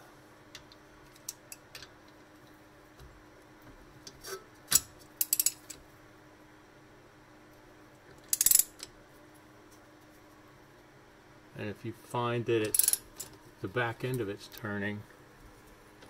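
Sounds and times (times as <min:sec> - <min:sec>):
socket ratchet clicking: 0:05.2 - 0:05.7, 0:08.3 - 0:08.9.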